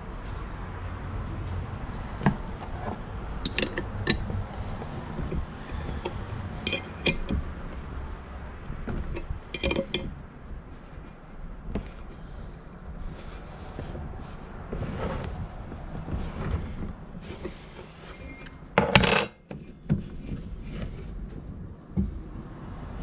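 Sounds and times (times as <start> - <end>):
spanner clinking on metal: 3.4 - 4.3, 6.0 - 7.4, 9.1 - 10.1, 18.8 - 19.4.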